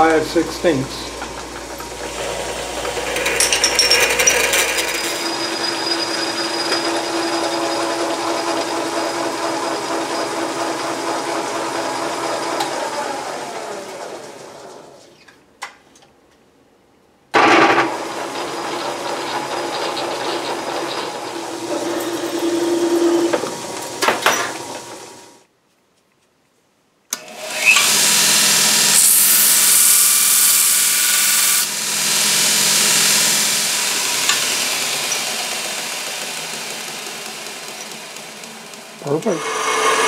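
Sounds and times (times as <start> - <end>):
belt grinder running: 0.0 - 14.4, 17.7 - 25.3, 27.2 - 40.0
metal lathe running: 0.0 - 14.4, 17.9 - 25.3, 27.4 - 40.0
steel grinding hiss: 39.2 - 40.0.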